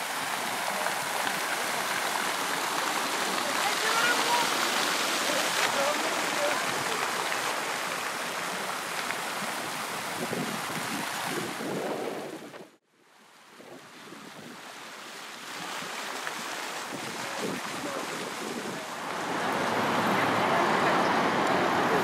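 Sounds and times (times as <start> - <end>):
traffic noise: 0.0 - 11.1, 17.2 - 22.0
fountain water splashing: 0.0 - 22.0
city ambience: 18.8 - 22.0.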